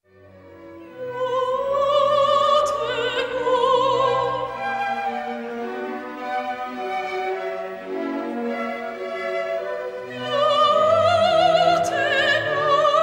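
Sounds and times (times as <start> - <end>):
string accompaniment: 0.0 - 13.0
woman singing classical solo: 0.9 - 5.4, 10.0 - 13.0.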